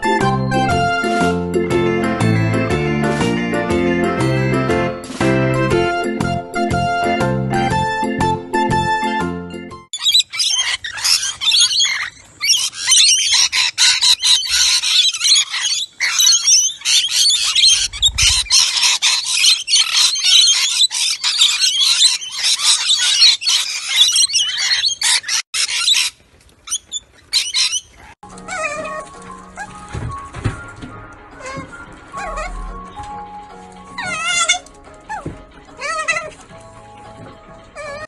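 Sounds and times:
lorikeets chattering and squawking: 10.0s - 29.8s, 31.4s - 36.4s.

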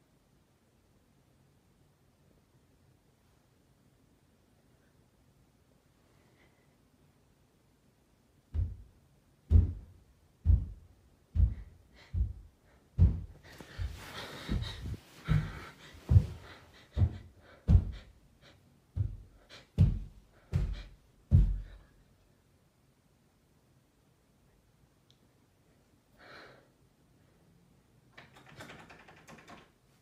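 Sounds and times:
soft hiss: 0.0s - 28.2s
dull low thumps: 8.5s - 8.9s, 9.5s - 18.1s, 18.9s - 21.8s.

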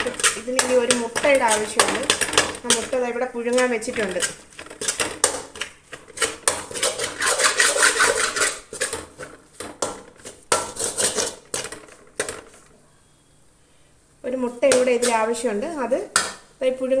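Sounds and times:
metal spatula scraping pan: 0.0s - 12.7s, 14.6s - 16.4s.

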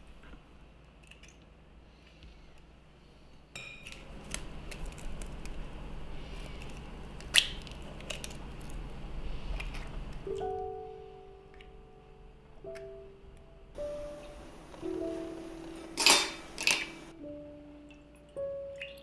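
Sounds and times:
egg cracking: 3.8s - 5.8s, 6.4s - 8.9s, 15.6s - 17.1s.

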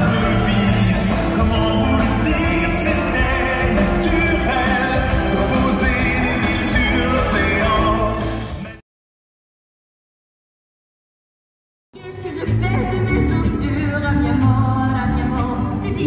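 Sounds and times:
loud show music with singing: 0.0s - 8.8s, 12.0s - 16.0s.

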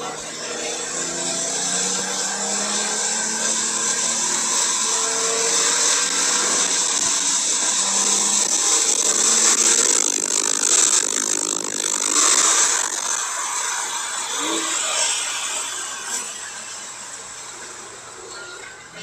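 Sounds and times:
car engine: 0.0s - 18.3s.

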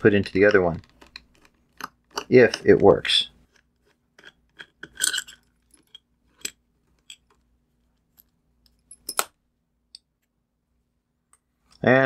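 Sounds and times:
faint steady hum: 0.0s - 12.0s
plastic parts clicking and clattering: 0.3s - 2.9s.

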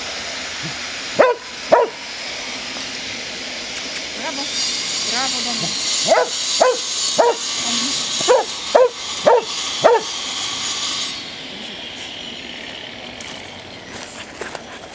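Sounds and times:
dog barking: 1.2s - 2.0s, 6.0s - 7.5s, 8.2s - 10.1s.

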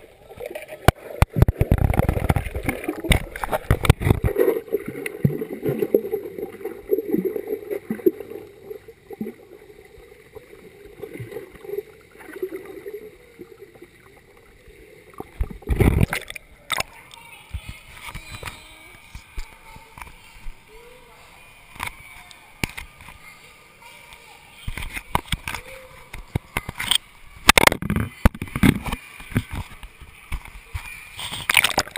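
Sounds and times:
muffled underwater churning: 0.0s - 17.0s
water splashing: 0.0s - 23.4s, 24.4s - 31.9s.

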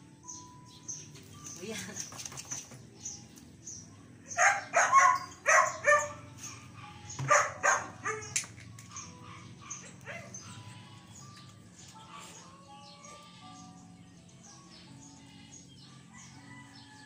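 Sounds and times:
dog barking and yelping: 4.3s - 10.7s.

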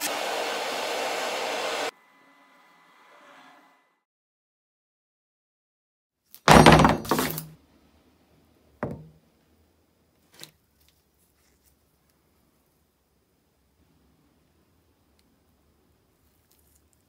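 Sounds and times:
wrench knocking on wooden bench: 8.8s - 9.1s.

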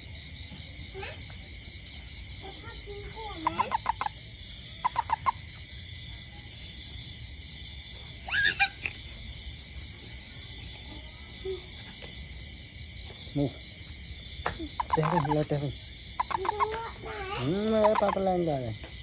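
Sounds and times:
insect chorus: 0.0s - 19.0s
toad chirping calls: 2.0s - 5.6s, 8.2s - 9.2s, 14.0s - 18.8s.

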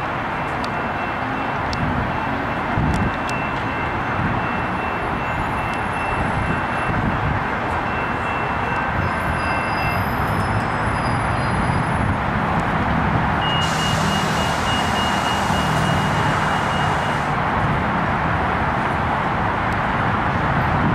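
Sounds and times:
train wheels on rails: 0.0s - 18.3s
diesel locomotive rumble: 0.0s - 20.9s
thin high tone: 13.4s - 17.4s.

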